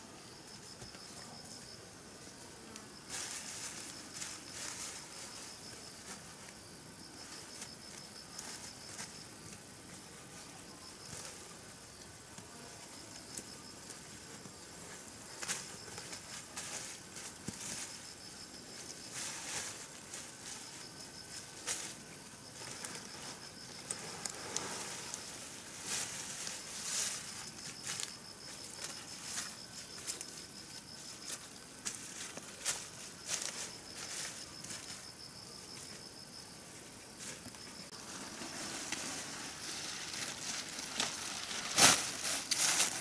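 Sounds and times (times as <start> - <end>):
insects trilling: 0.0 - 43.0.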